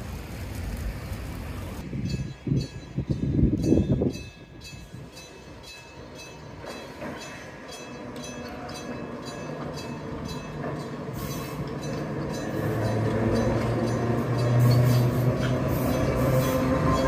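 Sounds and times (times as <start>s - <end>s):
warning bell ringing: 2.1s - 17.0s
electric train running: 5.6s - 17.0s.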